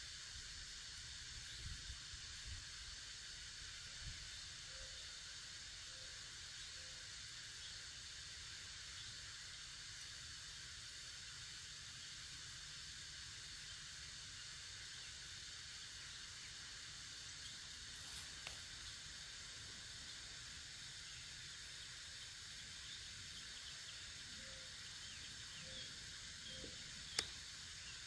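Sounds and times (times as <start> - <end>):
faint steady hiss: 0.0 - 28.0
faint small clicks: 27.1 - 27.4.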